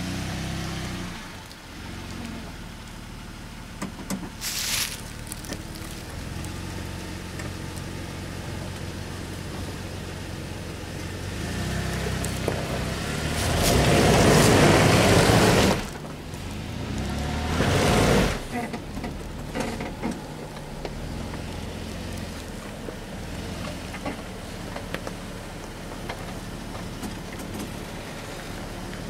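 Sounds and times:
engine revving: 0.0 - 2.6, 10.8 - 25.1
wheelspin in mud: 4.3 - 29.0.

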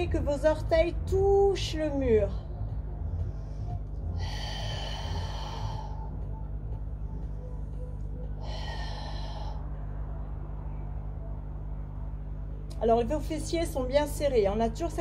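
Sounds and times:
steady low hum: 0.0 - 15.0
person breathing forcefully: 3.0 - 7.6, 8.3 - 10.0.

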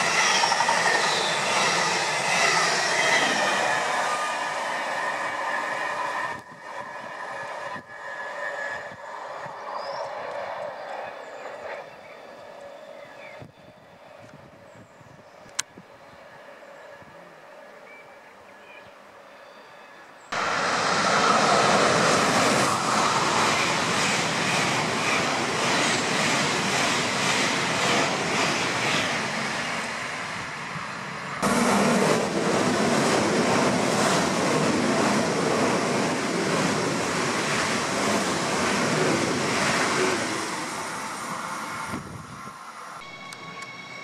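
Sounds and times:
high-speed train rushing past: 0.0 - 13.2, 20.3 - 44.0
trains passing: 0.0 - 14.3, 20.0 - 44.0.

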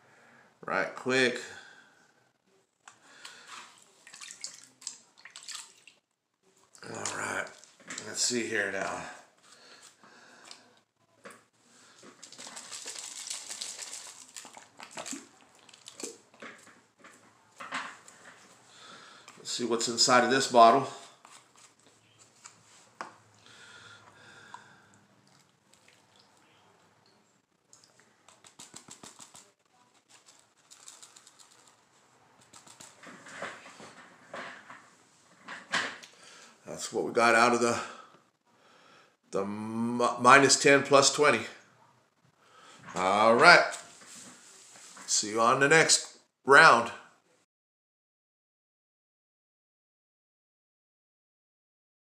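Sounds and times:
water sloshing and splashing: 3.4 - 6.0, 12.2 - 16.7, 25.3 - 26.4
plastic crinkles: 12.0 - 16.8, 28.2 - 33.9
plastic bottle sucking up water: 12.1 - 16.4.

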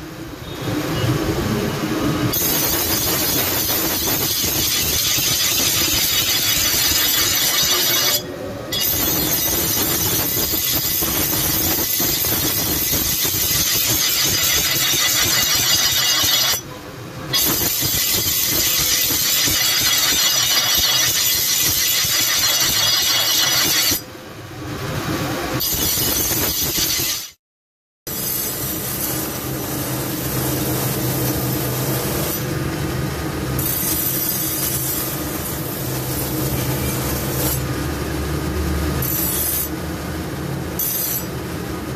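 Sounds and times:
blade grinding on wheel: 2.3 - 16.7, 17.3 - 24.1, 25.6 - 27.4, 33.6 - 37.7, 39.0 - 39.8, 40.8 - 41.4.

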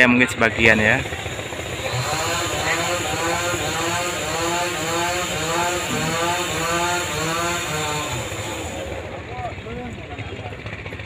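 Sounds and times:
small engine running: 0.0 - 11.0.

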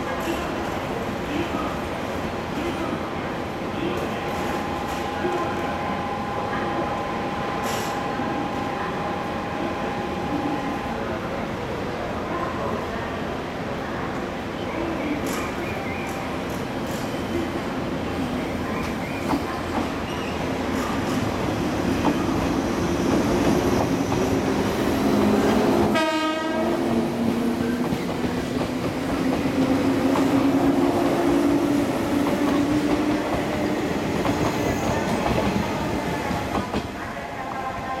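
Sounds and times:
electric train running past: 18.1 - 38.0.

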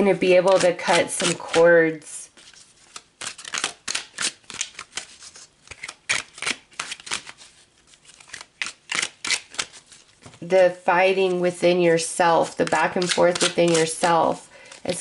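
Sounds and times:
cards being shuffled: 0.3 - 10.5, 12.4 - 15.0.

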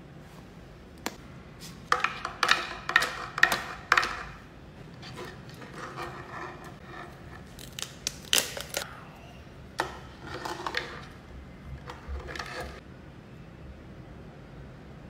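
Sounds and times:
crab shell cracking: 7.4 - 8.9.

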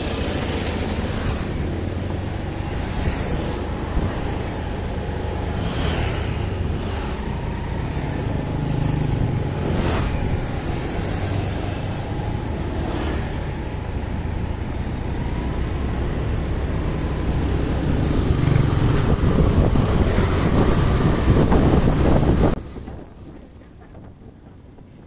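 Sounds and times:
road noise: 0.0 - 25.0
scooter traffic: 0.0 - 25.0
wind buffeting microphone: 1.4 - 5.4, 17.2 - 25.0.

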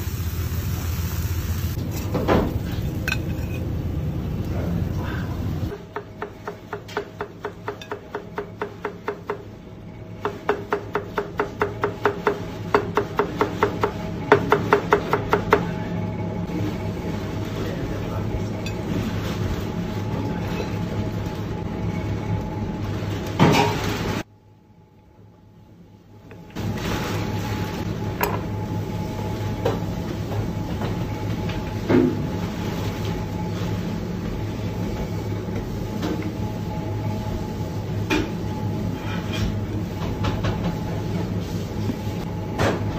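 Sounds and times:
steady low hum: 0.0 - 11.3
knife chopping on cutting board: 10.2 - 15.7.

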